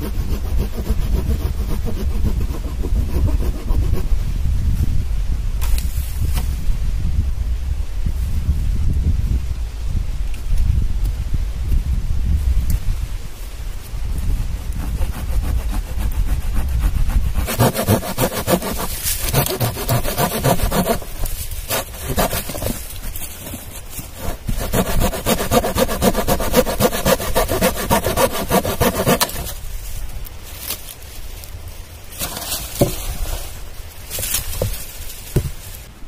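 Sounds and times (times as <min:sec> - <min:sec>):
hand saw cutting log: 0:00.0 - 0:04.1, 0:14.6 - 0:29.6.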